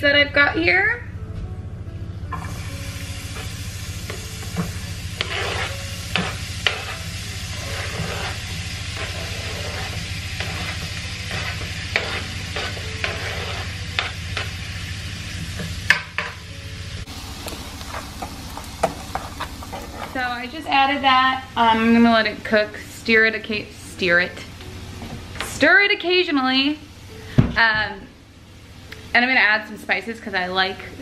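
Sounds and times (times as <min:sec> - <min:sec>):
steady low hum: 0:00.0 - 0:31.0
vegetables sizzling in oil: 0:02.4 - 0:24.4
utensil scraping pan: 0:03.3 - 0:14.6, 0:17.8 - 0:20.4.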